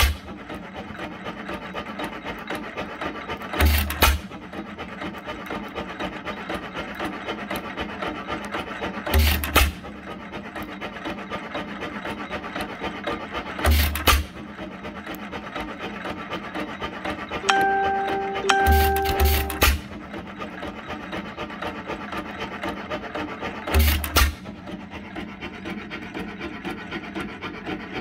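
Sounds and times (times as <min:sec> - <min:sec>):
gas engine clattering: 0:17.1 - 0:28.0
loud exhaust beats: 0:17.4 - 0:20.1.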